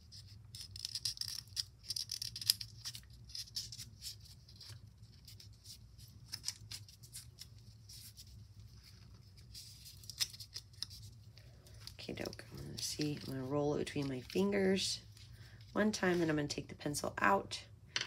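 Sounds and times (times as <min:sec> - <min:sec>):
paper rustling and crinkling: 0:01.9 - 0:16.3.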